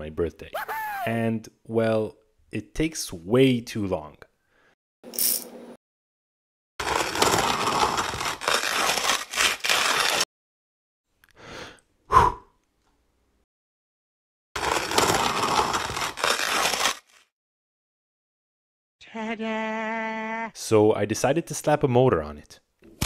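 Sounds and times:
hand grinder crunching coffee beans: 6.8s - 10.2s, 14.6s - 17.2s.

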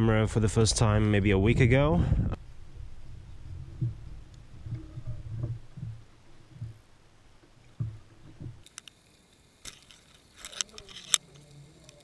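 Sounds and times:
faint steady hiss: 0.0s - 12.0s
soft thumps of fishing gear: 4.7s - 8.6s
sharp clicks: 8.6s - 12.0s.

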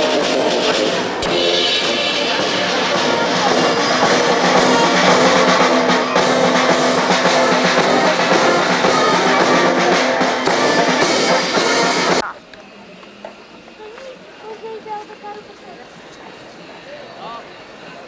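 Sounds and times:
steady drum beat: 0.0s - 12.3s
trombones: 0.0s - 12.3s
tuba: 0.0s - 12.3s.

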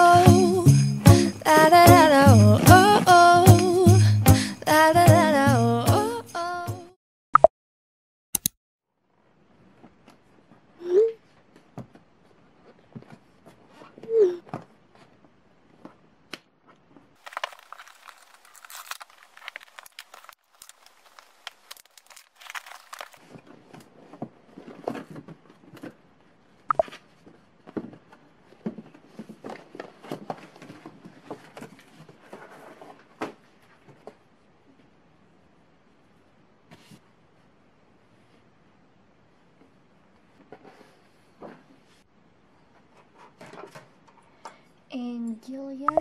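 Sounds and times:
paper rustling and tearing: 17.2s - 23.9s.

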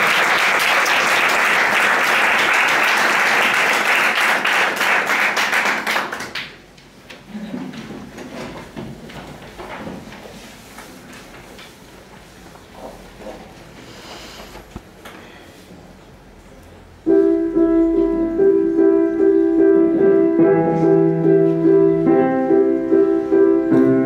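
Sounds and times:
audience applauding: 0.0s - 6.6s
faint knocks and rustles: 7.1s - 13.7s.

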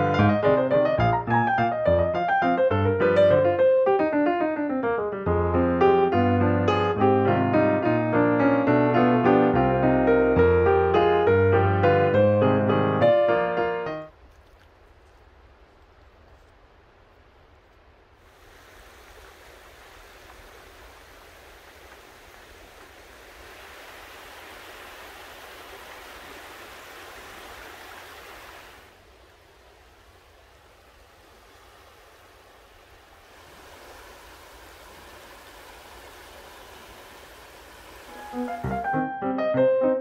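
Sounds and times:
small waves washing in: 18.1s - 39.0s.

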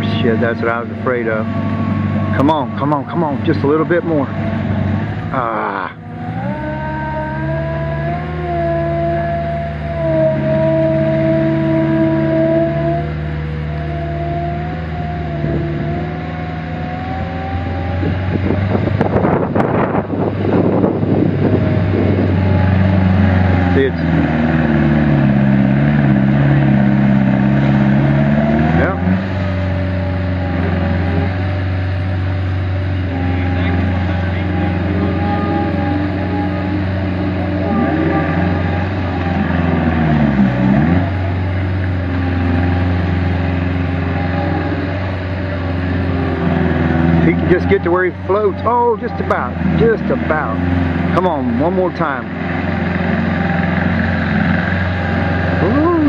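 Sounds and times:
thin hydraulic whine: 0.0s - 26.4s
diesel engine under load: 0.0s - 56.0s
water churning: 0.0s - 56.0s.

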